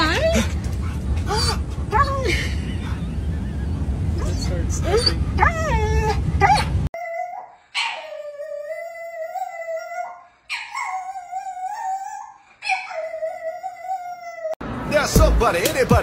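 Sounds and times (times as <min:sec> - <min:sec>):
low rumble: 0:00.0 - 0:06.9
dog howling: 0:04.2 - 0:14.6.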